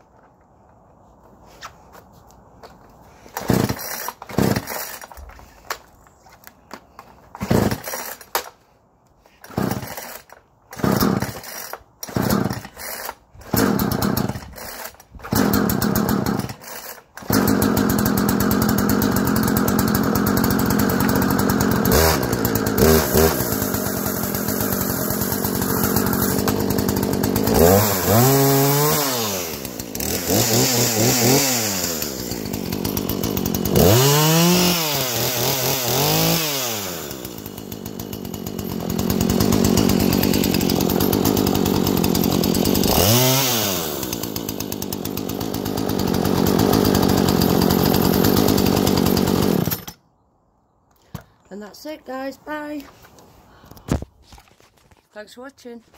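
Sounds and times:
chainsaw idling and revving: 3.2s - 5.6s, 7.3s - 8.5s, 9.2s - 50.0s.

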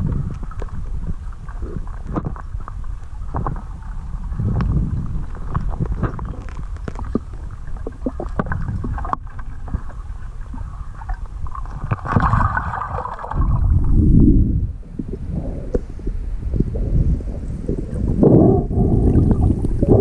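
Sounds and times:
muffled underwater river rumble: 0.0s - 20.0s
low whoosh: 3.9s - 6.6s, 12.1s - 20.0s
faint clicks and ticks: 4.5s - 9.9s.

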